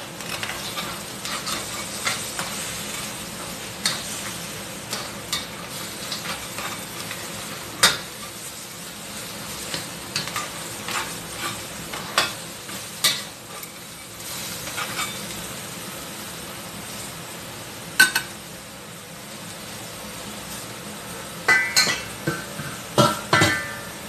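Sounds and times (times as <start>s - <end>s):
food sizzling in a frying pan: 0.0s - 24.0s
metal spatula scraping a pan: 0.2s - 8.6s, 9.5s - 15.3s.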